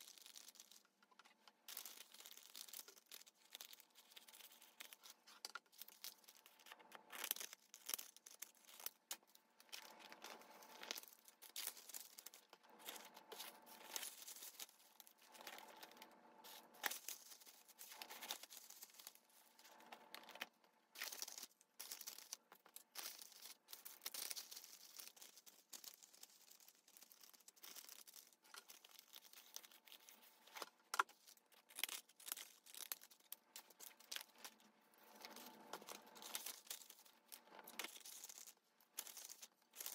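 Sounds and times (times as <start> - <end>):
paper rustling and crinkling: 0.0 - 39.9.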